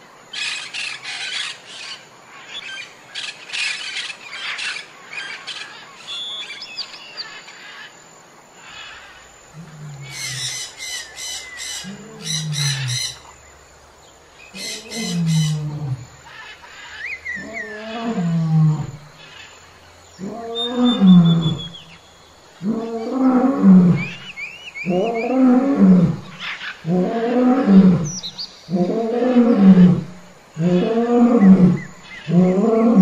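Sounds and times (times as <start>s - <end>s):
faint bird chirps: 0.3s - 7.9s, 19.2s - 22.4s.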